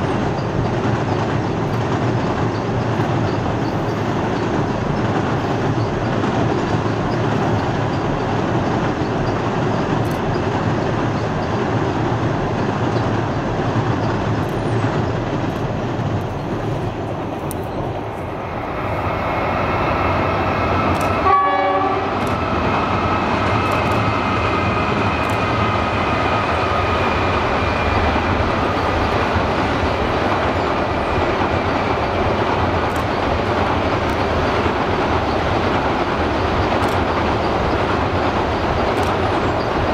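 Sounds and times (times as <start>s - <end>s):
train wheels rumbling on bridge: 0.0s - 39.9s
click: 17.4s - 17.7s, 20.9s - 21.2s, 22.2s - 22.4s, 23.6s - 24.1s.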